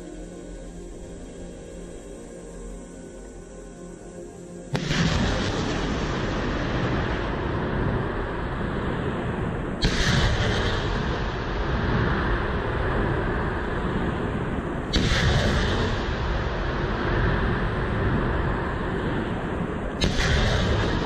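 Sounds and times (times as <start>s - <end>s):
soft music: 0.0s - 21.0s
missile launch blast: 4.7s - 8.1s, 9.8s - 12.9s, 14.9s - 17.1s, 20.0s - 21.0s
sharp blast: 4.7s - 8.2s, 9.3s - 18.2s, 20.0s - 21.0s.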